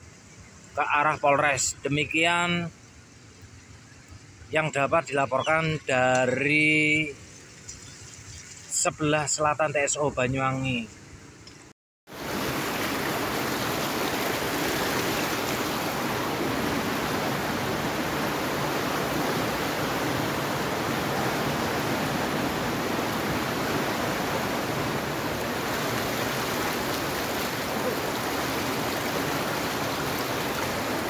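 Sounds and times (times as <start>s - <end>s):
flood water rushing: 12.1s - 31.0s.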